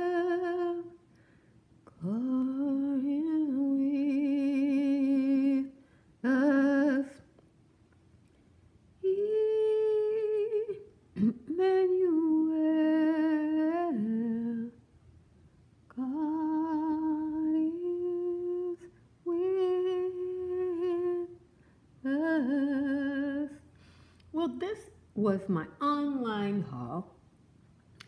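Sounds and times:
woman humming a slow tune: 0:00.0 - 0:01.0, 0:01.9 - 0:07.2, 0:09.0 - 0:14.8, 0:15.9 - 0:21.4, 0:22.0 - 0:23.7.

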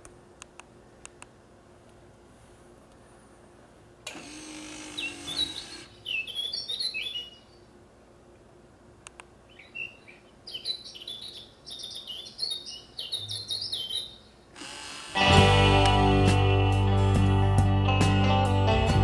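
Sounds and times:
cuckoo clock mechanical whir: 0:04.0 - 0:06.8, 0:14.6 - 0:15.5
clock birdsong chirps and trills: 0:04.8 - 0:07.6, 0:09.5 - 0:14.4.

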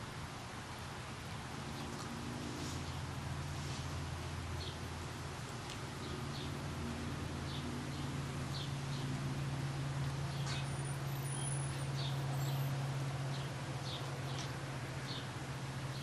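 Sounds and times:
steady low hum: 0:00.0 - 0:16.0
small birds chirping: 0:04.5 - 0:04.9, 0:05.6 - 0:06.6, 0:07.4 - 0:09.2, 0:10.1 - 0:16.0.

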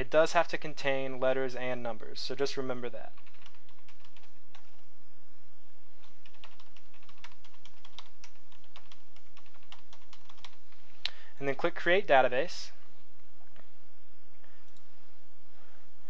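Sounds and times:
steady low hum: 0:00.0 - 0:16.0
typing on keyboard: 0:03.2 - 0:04.8, 0:06.0 - 0:10.6.

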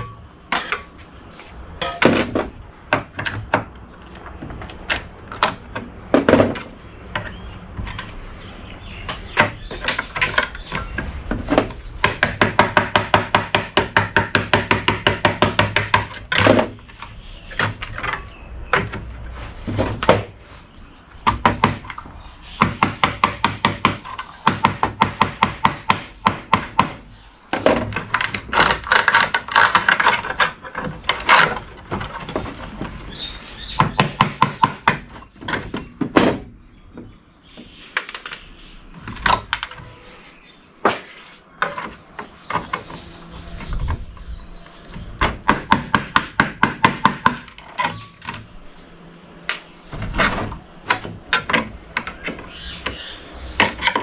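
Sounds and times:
knocks and clatters: 0:01.8 - 0:08.2, 0:21.2 - 0:40.0, 0:49.5 - 0:53.0.

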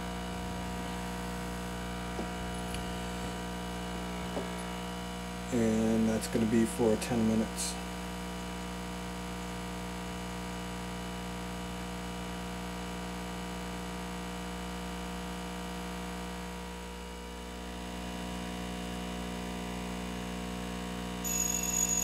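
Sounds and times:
hot air station humming: 0:00.0 - 0:06.4.

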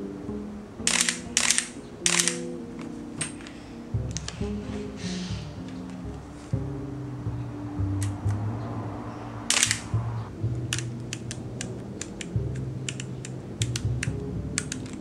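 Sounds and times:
camera dial detent clicks: 0:00.9 - 0:02.4, 0:09.5 - 0:09.9, 0:10.7 - 0:12.3.

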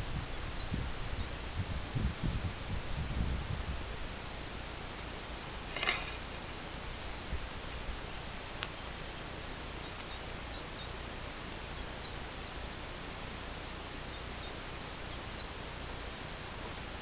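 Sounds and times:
outdoor background hiss: 0:00.0 - 0:17.0
small bird chirping: 0:08.6 - 0:15.7.

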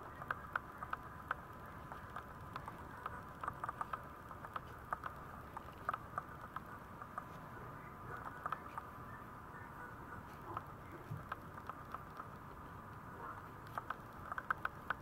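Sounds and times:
puppy claws tapping on vinyl floor: 0:00.1 - 0:07.3.

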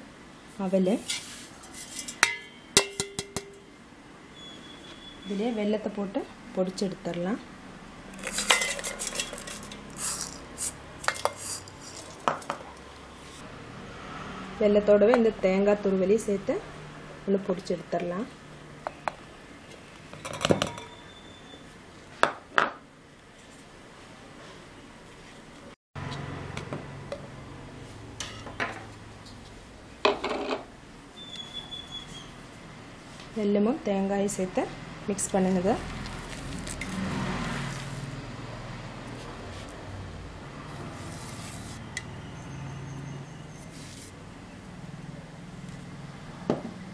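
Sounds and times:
steel kitchenware clinking: 0:01.1 - 0:03.7, 0:08.2 - 0:12.2
metal scraping: 0:08.1 - 0:12.2.

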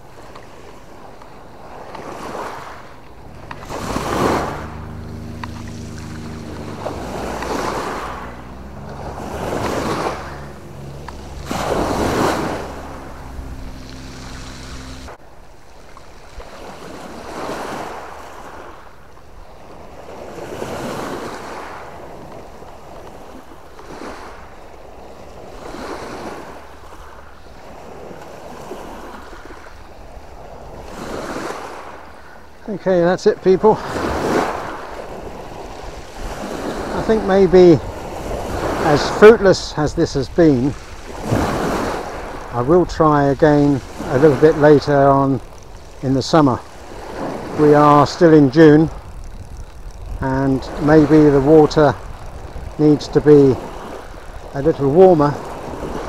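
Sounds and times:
steady low drone: 0:00.0 - 0:15.4
waves on pebbly shore: 0:00.0 - 0:56.0.

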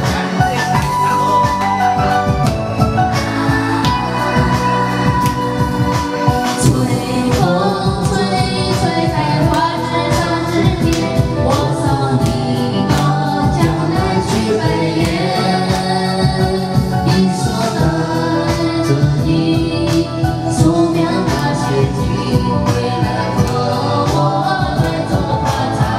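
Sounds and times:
backing track with steady beat: 0:00.0 - 0:25.9
voices singing along: 0:03.1 - 0:25.9
woman singing into microphone: 0:03.2 - 0:25.9.

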